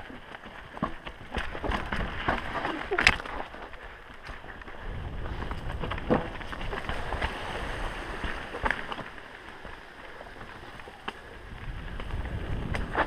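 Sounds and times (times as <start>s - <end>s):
bike clacking over bumps: 0.0s - 7.4s
bike tyre rumble: 0.0s - 13.0s
wind buffeting the microphone: 1.1s - 13.0s.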